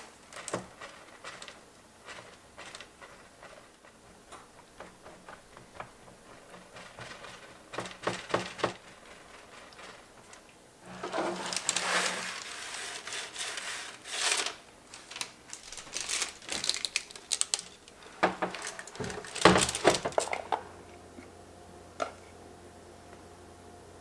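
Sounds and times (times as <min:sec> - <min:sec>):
parchment paper crinkling: 0:05.7 - 0:20.4
faint hum: 0:14.6 - 0:24.0.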